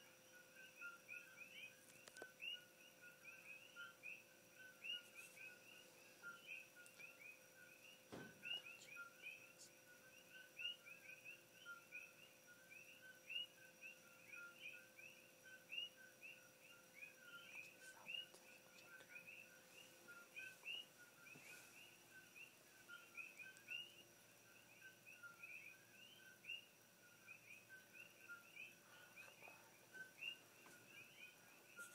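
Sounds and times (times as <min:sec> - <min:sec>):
frogs chirping: 0:00.0 - 0:31.9
soft thump: 0:08.1 - 0:08.5.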